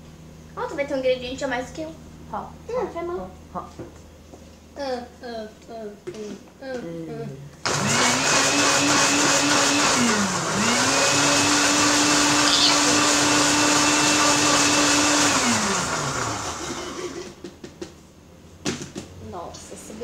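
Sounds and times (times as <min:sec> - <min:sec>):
electric blender running: 0:07.6 - 0:17.4.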